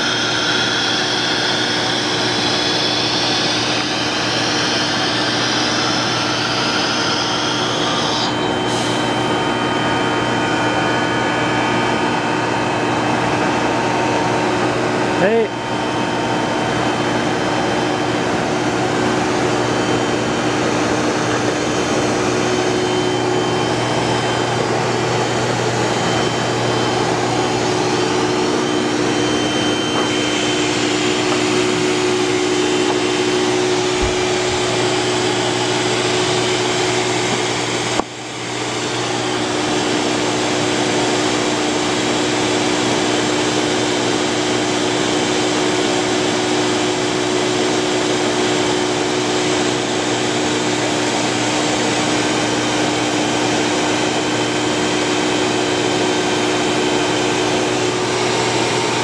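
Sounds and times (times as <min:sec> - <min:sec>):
machine hum: 0:00.0 - 0:59.0
industrial machine rushing noise: 0:14.3 - 0:38.0.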